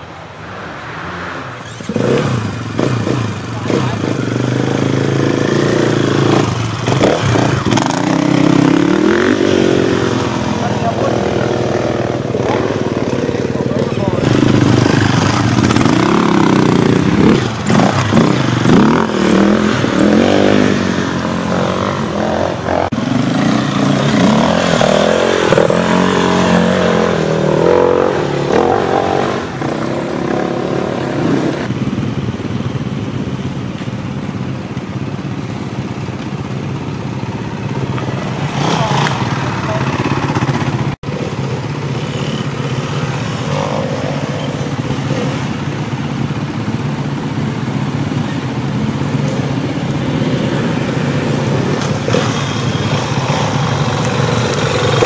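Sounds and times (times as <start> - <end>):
dirt bike engines revving: 0.0 - 55.0.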